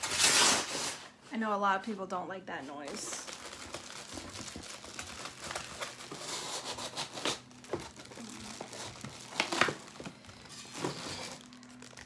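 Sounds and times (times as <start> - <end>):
plastic packaging crinkling: 2.9 - 12.0.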